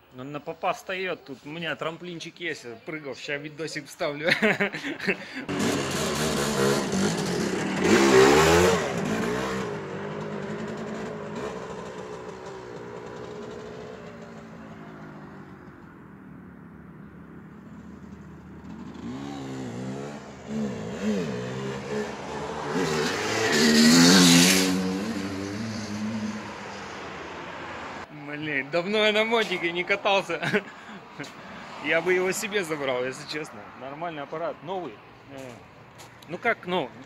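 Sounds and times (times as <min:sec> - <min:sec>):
motorcycle engine revving: 0:05.5 - 0:15.8, 0:17.6 - 0:28.0.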